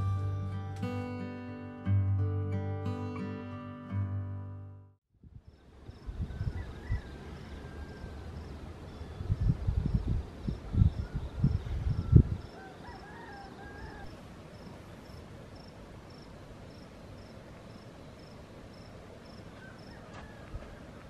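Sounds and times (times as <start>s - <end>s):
crickets chirping: 5.3s - 21.0s.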